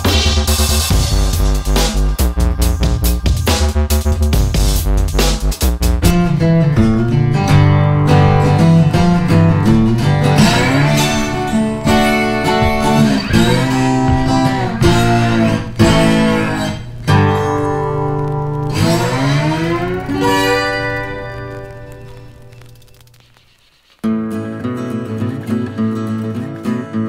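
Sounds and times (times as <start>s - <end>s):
guitar instrumental music: 5.8s - 23.2s, 24.0s - 27.0s.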